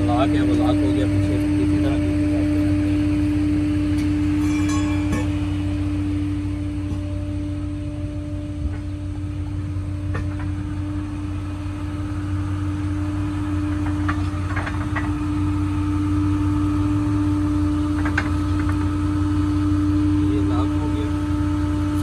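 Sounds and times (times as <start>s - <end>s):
vehicle engine idling: 0.0s - 22.0s.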